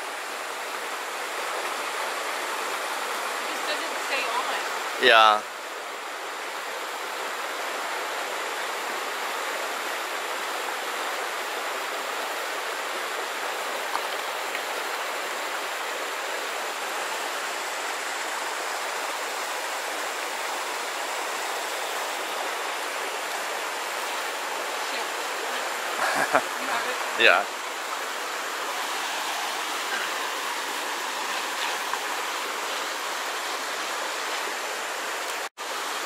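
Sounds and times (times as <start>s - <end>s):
stream water running over rocks: 0.0s - 36.0s.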